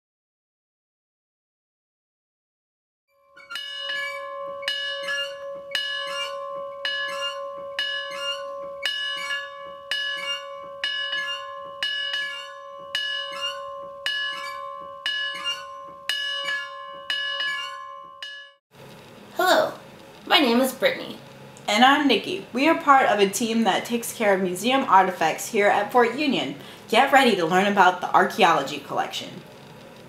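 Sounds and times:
large bell tolling: 0:03.4 - 0:18.6.

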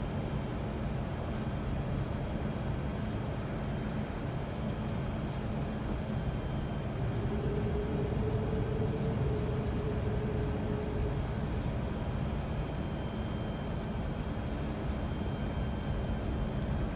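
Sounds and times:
faint steady tone: 0:00.0 - 0:16.9
aircraft engines rumbling: 0:02.1 - 0:16.9.

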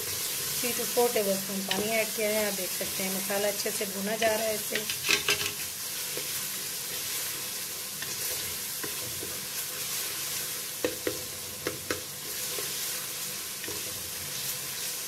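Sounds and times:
masala sizzling in oil: 0:00.0 - 0:15.0
wooden spatula stirring and scraping: 0:04.2 - 0:15.0.

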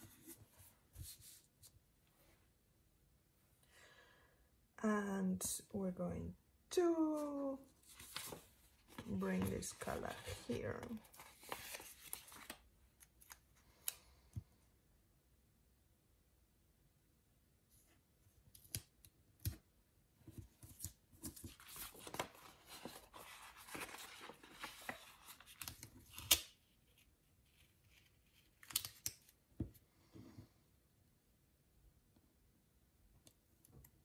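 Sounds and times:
paper rustling: 0:07.8 - 0:12.6, 0:20.6 - 0:26.4.

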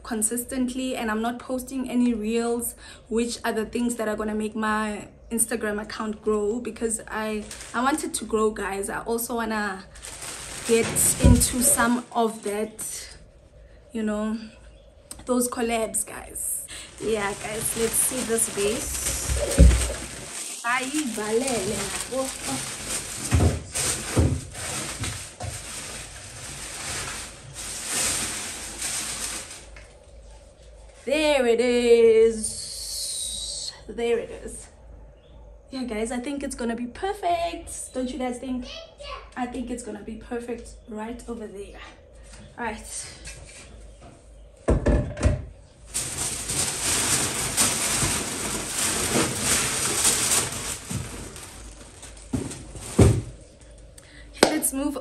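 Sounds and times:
packing paper rustling and crackling: 0:06.7 - 0:13.2, 0:16.7 - 0:31.1, 0:45.8 - 0:53.9
thumps: 0:16.9 - 0:25.7.

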